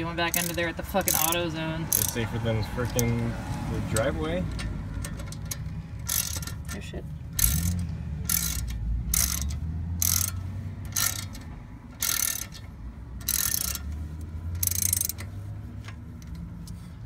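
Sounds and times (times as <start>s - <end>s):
ratchet wrench clicking: 0.0s - 3.3s, 3.9s - 16.9s.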